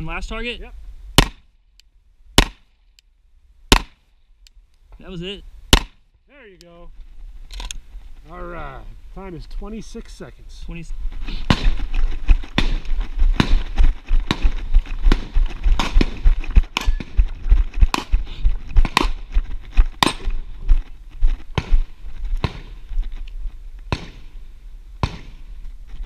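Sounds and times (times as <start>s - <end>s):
footsteps on dirt: 9.6s - 24.3s.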